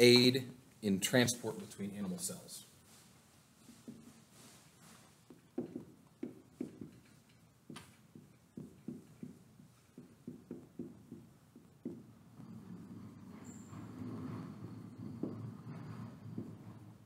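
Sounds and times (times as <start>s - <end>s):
marker writing on whiteboard: 3.6s - 16.6s
marker squeaks: 12.4s - 14.7s.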